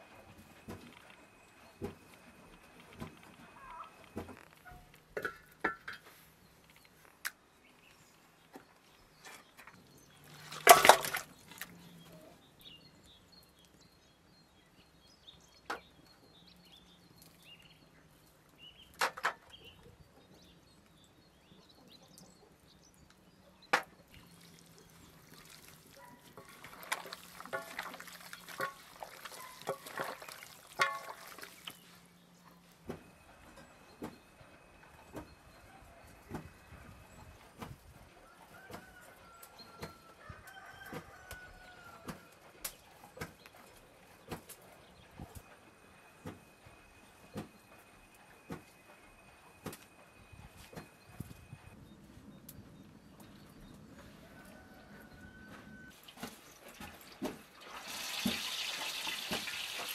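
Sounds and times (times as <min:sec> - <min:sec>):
handling knocks and clinks: 0:09.3 - 0:11.8.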